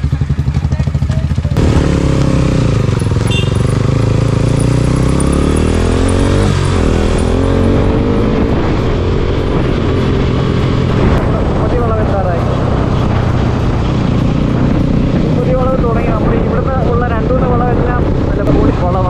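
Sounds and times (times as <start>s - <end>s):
motorcycle engine running: 0.0s - 19.0s
wind rushing over microphone: 5.2s - 19.0s.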